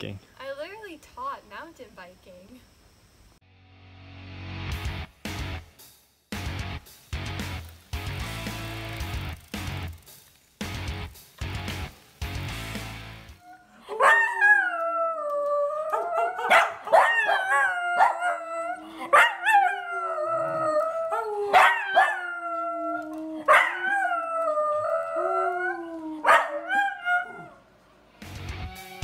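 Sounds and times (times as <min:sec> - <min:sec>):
dog howling: 0:13.4 - 0:27.6
man howling: 0:13.4 - 0:27.6
dog barking: 0:16.4 - 0:17.3, 0:21.5 - 0:22.2, 0:26.3 - 0:26.6.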